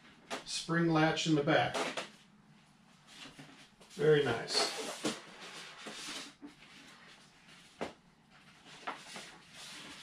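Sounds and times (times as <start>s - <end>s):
foam and plastic rustling: 4.0s - 7.7s.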